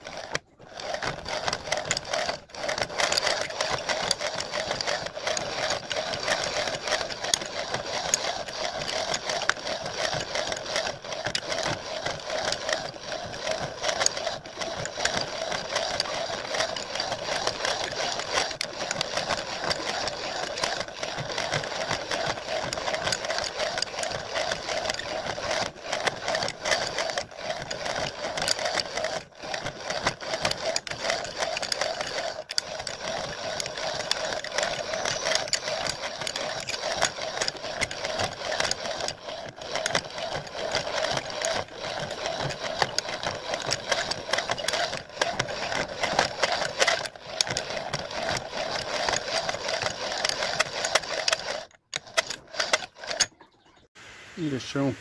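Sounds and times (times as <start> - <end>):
metal scraping chatter: 0.1 - 53.8.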